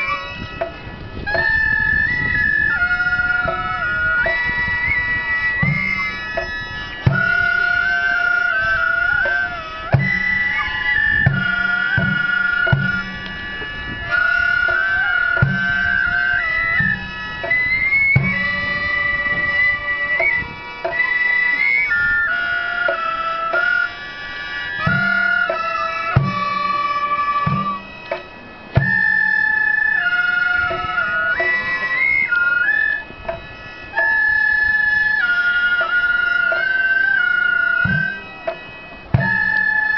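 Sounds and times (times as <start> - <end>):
reedy double-reed pipes: 0.0 - 39.9
drum strikes: 5.6 - 7.9, 9.9 - 10.5, 11.1 - 13.5, 15.4 - 17.6, 18.2 - 18.8, 24.8 - 29.3, 37.9 - 39.9.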